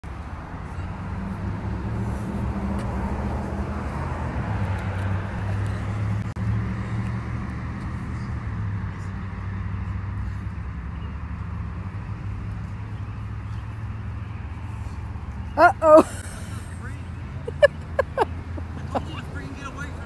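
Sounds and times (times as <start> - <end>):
traffic hum: 0.0 - 20.0.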